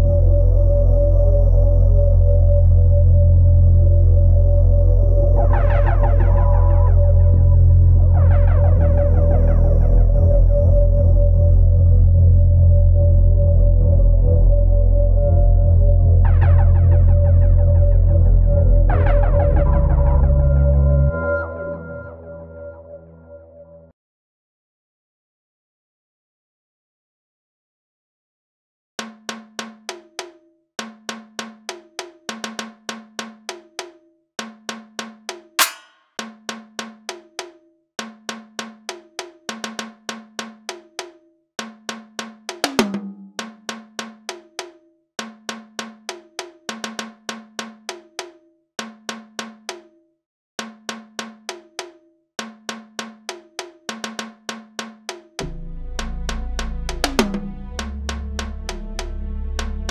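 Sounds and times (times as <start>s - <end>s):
metallic percussion riff: 35.6s - 36.2s, 55.4s - 59.9s.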